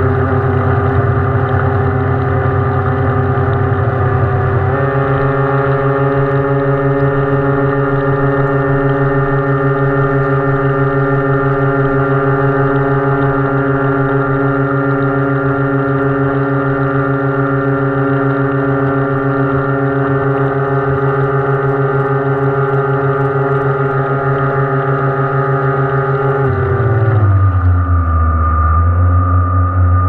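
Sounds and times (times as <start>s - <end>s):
electric motor whine: 0.0s - 30.0s
water rushing past hull: 0.0s - 30.0s.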